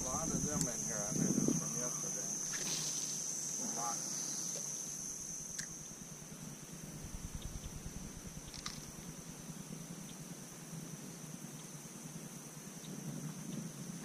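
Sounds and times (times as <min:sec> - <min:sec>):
wind rumble on microphone: 0:00.0 - 0:01.9, 0:07.0 - 0:09.5
high-pitched whine: 0:00.0 - 0:09.7.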